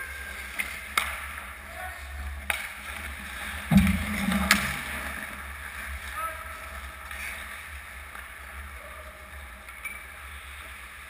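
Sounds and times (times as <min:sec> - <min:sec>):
hockey sticks and puck clacking: 0:00.0 - 0:01.6, 0:02.3 - 0:03.7, 0:05.6 - 0:08.7
skates scraping ice: 0:00.0 - 0:03.7
rink hum: 0:03.7 - 0:05.4.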